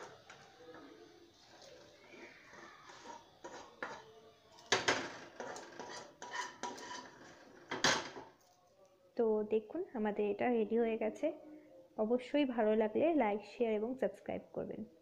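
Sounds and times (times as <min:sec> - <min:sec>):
spoon scraping a pan: 0:00.0 - 0:08.4.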